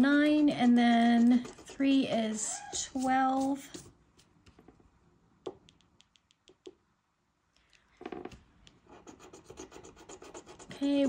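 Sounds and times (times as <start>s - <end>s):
pen scratching card: 0.6s - 3.9s, 8.9s - 11.0s
pen and hands tapping tabletop: 5.4s - 6.8s.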